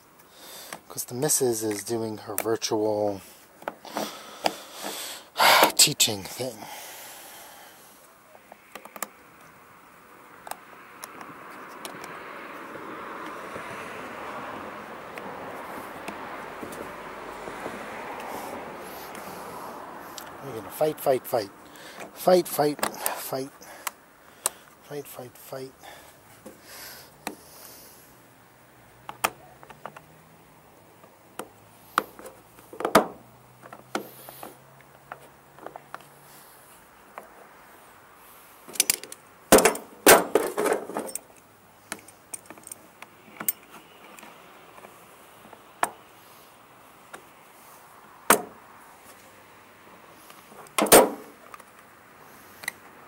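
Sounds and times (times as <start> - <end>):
tools clattering: 38.7 - 41.4
metallic clinks and knocks: 38.7 - 42.8.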